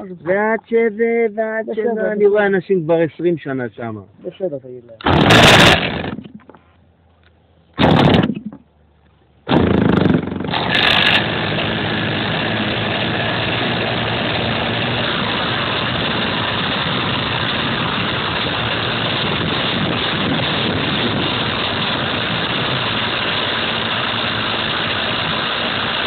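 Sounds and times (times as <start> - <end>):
short loud burst: 5.0 - 6.4, 7.8 - 8.6, 9.4 - 26.0
model airplane motor and propeller: 5.0 - 6.6, 9.5 - 26.0.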